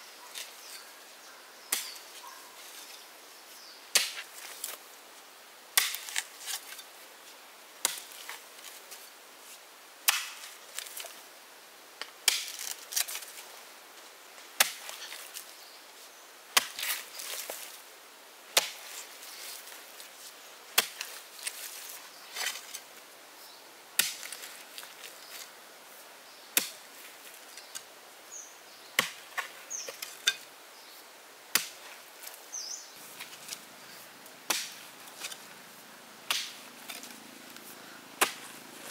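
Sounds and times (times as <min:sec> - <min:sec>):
axe blade striking wood: 0:34.5 - 0:35.4, 0:36.3 - 0:37.1, 0:38.2 - 0:38.4.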